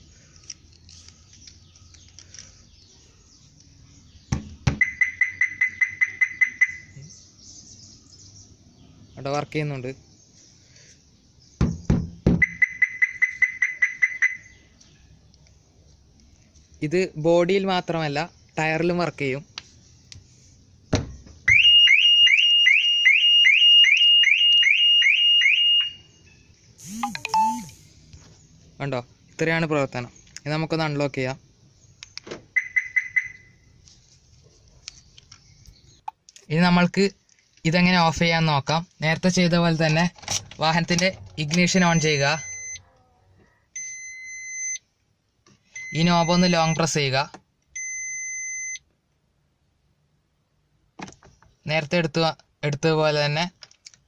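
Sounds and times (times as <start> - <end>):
faint birdsong: 0.0 - 21.7, 25.9 - 38.0
knocks on car body: 4.3 - 4.9, 11.6 - 12.5
car alarm beeps: 4.8 - 7.0, 12.4 - 14.6, 21.5 - 26.1, 26.8 - 27.8, 32.5 - 33.6, 42.3 - 42.8, 43.8 - 44.9, 45.7 - 46.9, 47.8 - 48.9.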